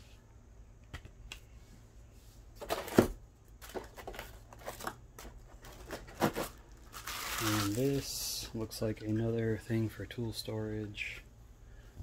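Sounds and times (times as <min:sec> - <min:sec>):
plastic packaging handling: 0:02.6 - 0:08.2.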